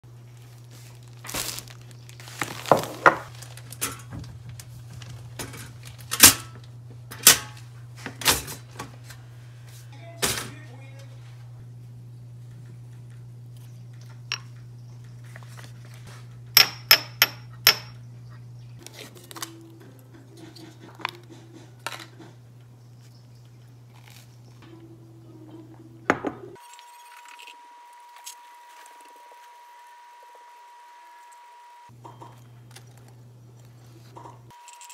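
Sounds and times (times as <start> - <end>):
low steady hum: 0.1 - 34.5.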